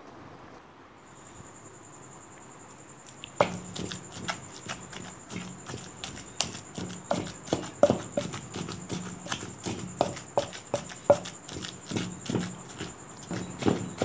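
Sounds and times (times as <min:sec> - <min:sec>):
pestle knocking in stone mortar: 0:03.4 - 0:14.0.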